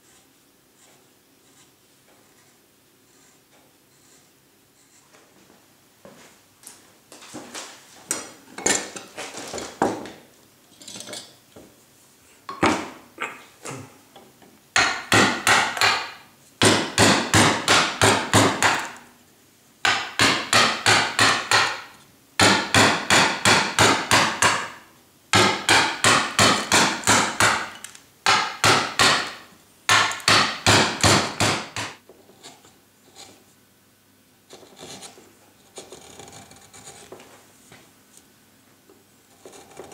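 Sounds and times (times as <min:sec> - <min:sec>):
mallet striking carving gouge: 0:14.8 - 0:18.9, 0:19.9 - 0:24.7, 0:25.4 - 0:32.0.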